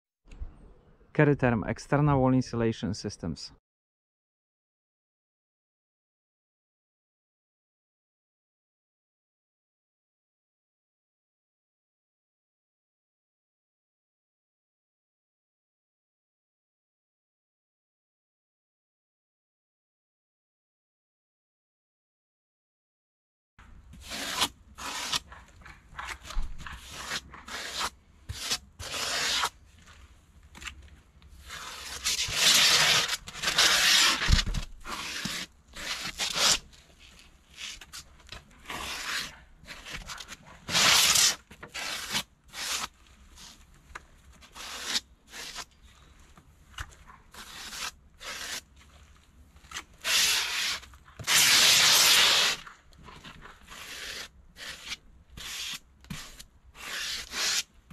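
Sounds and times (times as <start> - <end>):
foam scraping against blade: 24.0 - 30.1, 31.3 - 43.7, 44.4 - 46.2, 46.8 - 57.7.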